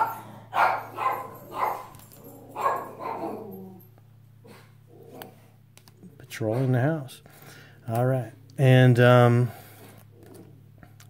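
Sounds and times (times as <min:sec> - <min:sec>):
dog barking: 0:00.0 - 0:03.8, 0:06.4 - 0:06.8
faint low hum: 0:00.0 - 0:11.0.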